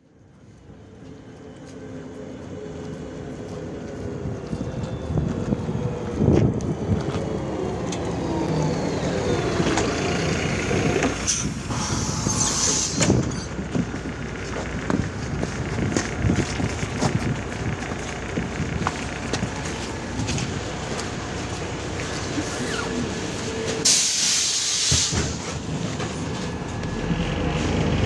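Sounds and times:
bus engine whining: 0:00.0 - 0:28.0
compressed air hiss: 0:23.8 - 0:25.4.

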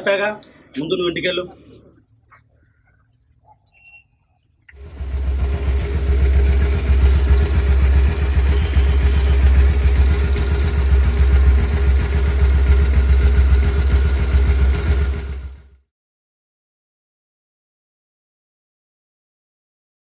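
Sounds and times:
motorcycle engine idling: 0:04.7 - 0:15.7.

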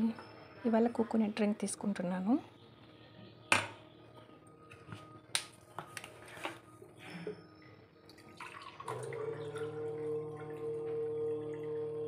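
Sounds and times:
liquid pouring into glass: 0:08.1 - 0:11.8.

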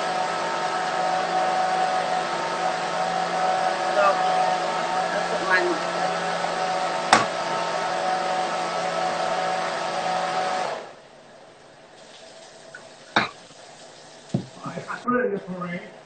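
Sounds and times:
electric blender motor: 0:00.0 - 0:11.0.

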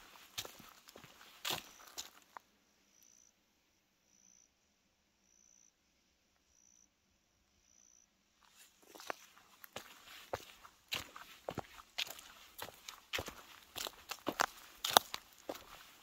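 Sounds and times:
footsteps on trail: 0:00.0 - 0:02.4, 0:08.4 - 0:16.0
insect buzzing faintly: 0:00.9 - 0:16.0.

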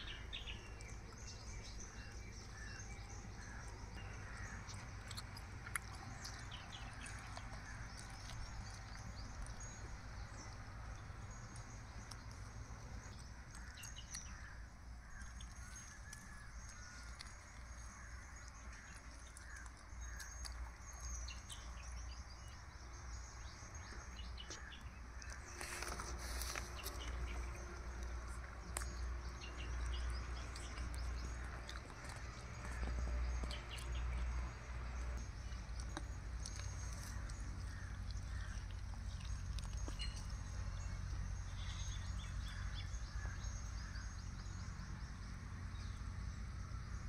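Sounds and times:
small birds chirping: 0:00.0 - 0:47.0
rustling: 0:25.3 - 0:27.6.

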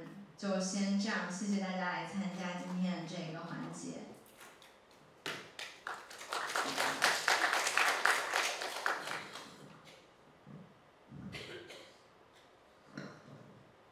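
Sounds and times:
audience clapping: 0:05.2 - 0:10.0.

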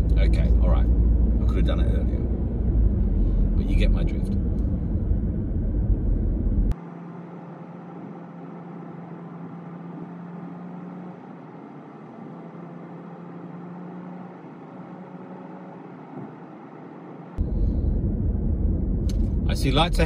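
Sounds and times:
steady low hum: 0:00.0 - 0:10.2, 0:17.4 - 0:20.0
car road and engine noise: 0:00.0 - 0:20.0.

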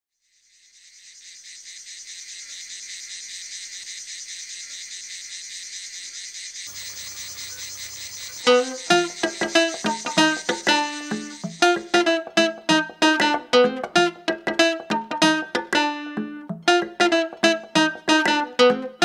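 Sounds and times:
insects chirping: 0:00.2 - 0:12.5.

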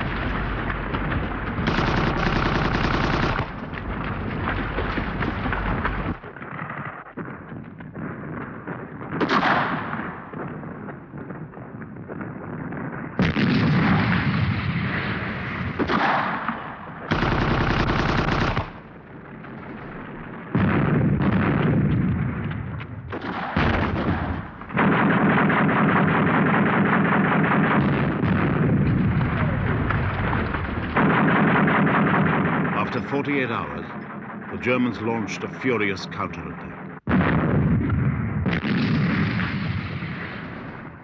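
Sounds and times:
machine guns firing: 0:00.0 - 0:11.4, 0:12.1 - 0:36.5
gunshots: 0:00.0 - 0:41.0.

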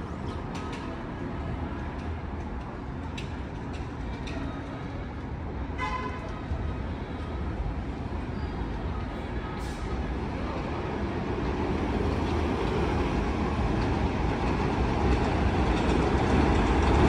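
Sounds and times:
low rumble of city street noise: 0:00.0 - 0:17.0.

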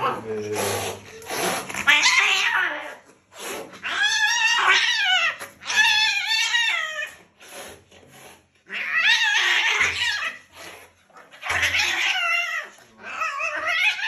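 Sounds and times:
cat yowling: 0:01.8 - 0:03.0, 0:03.8 - 0:07.2, 0:08.7 - 0:10.5, 0:11.4 - 0:14.0.

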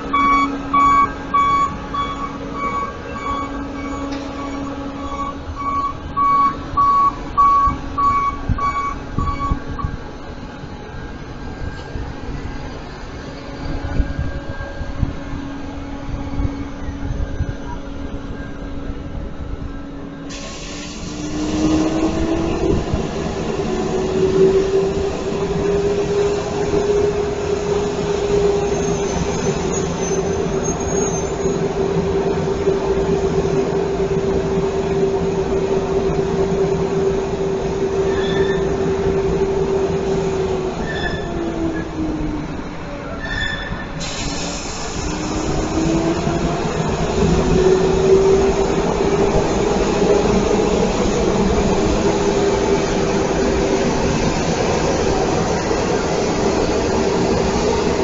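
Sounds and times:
sweeper truck mechanical drone: 0:00.0 - 0:43.2.

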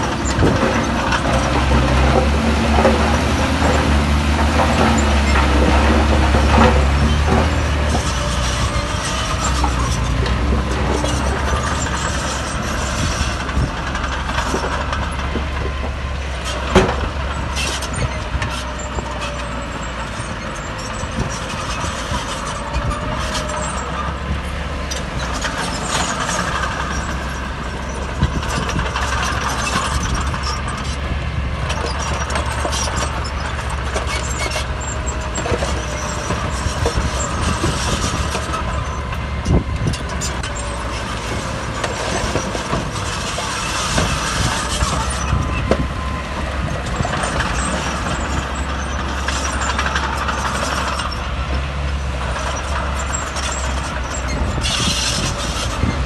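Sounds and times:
diesel machinery engine drone: 0:00.0 - 0:56.0
metal clanks and rattles: 0:00.0 - 0:56.0.

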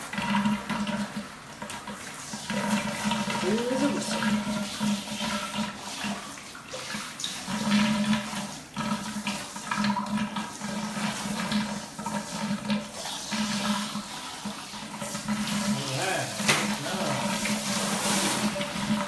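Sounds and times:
shower head spraying water: 0:03.3 - 0:04.3, 0:13.2 - 0:18.8.

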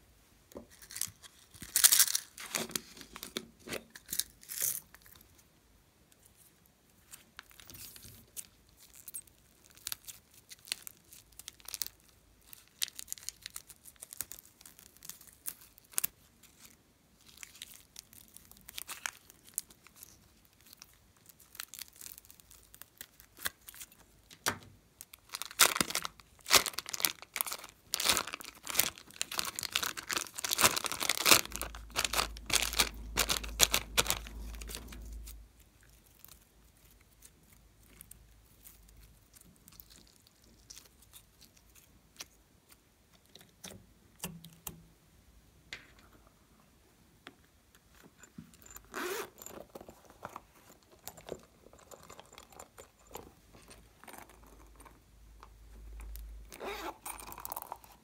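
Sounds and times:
plastic bag crinkling: 0:07.4 - 0:24.0, 0:25.0 - 0:41.8, 0:56.0 - 0:58.0.

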